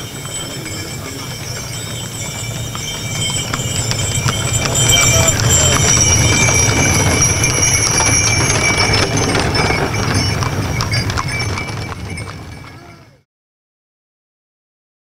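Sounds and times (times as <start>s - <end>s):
horse hooves clip-clopping on pavement: 0.0s - 13.2s.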